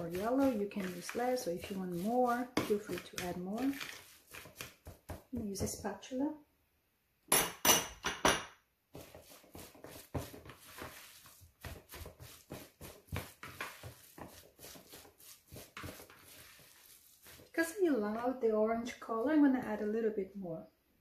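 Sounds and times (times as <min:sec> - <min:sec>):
spatula scraping in ceramic bowl: 0:00.0 - 0:05.8, 0:09.0 - 0:17.8.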